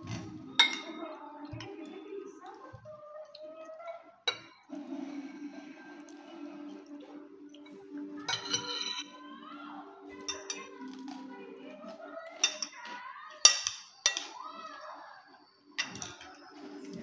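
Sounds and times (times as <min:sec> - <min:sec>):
cutlery clinking on a plate: 0:00.0 - 0:01.7, 0:07.7 - 0:09.2, 0:10.2 - 0:11.1, 0:12.3 - 0:14.4, 0:15.8 - 0:16.4.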